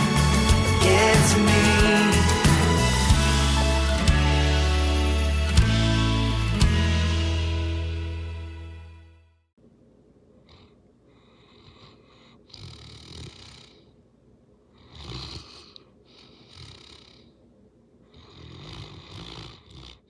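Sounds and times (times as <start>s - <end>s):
dog snoring: 10.4s - 14.0s, 14.7s - 17.4s, 18.0s - 20.0s.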